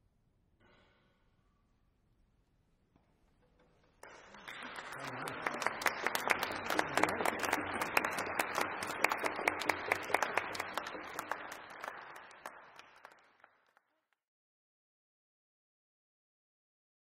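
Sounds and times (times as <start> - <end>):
people applauding: 4.0 - 13.9.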